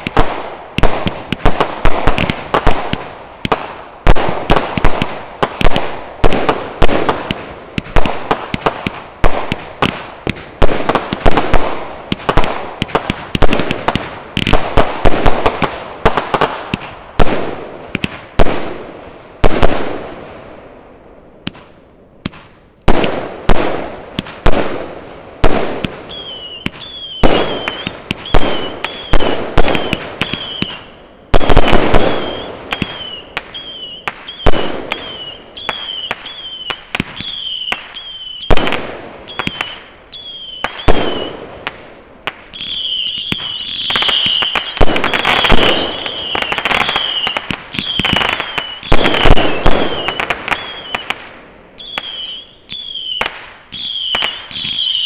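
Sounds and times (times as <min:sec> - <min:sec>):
fireworks bangs: 0:00.0 - 0:20.8, 0:21.4 - 0:55.0
shrill firework whistles: 0:26.1 - 0:38.6, 0:39.3 - 0:41.4, 0:42.5 - 0:51.1, 0:51.8 - 0:55.0.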